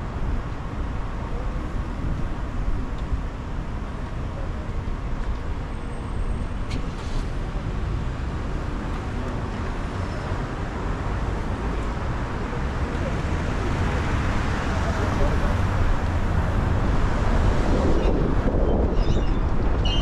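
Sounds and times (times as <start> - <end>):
city traffic rumble: 0.0 - 20.0.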